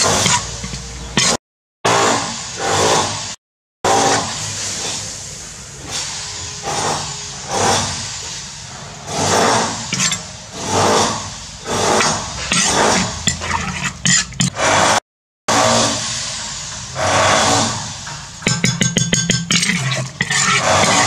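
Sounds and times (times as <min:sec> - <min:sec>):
metal spoon scraping a wok: 0:00.0 - 0:01.4, 0:09.1 - 0:11.1, 0:11.7 - 0:15.9, 0:18.4 - 0:21.0.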